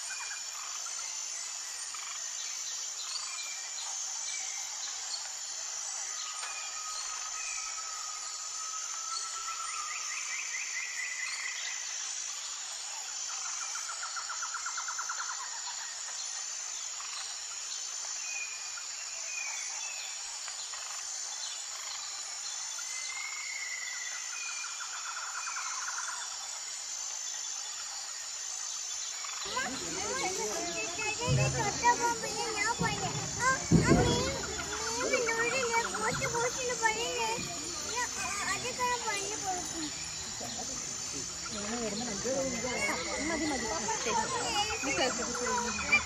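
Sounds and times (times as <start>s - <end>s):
high insect drone: 0.0s - 46.0s
birds calling: 29.3s - 46.0s.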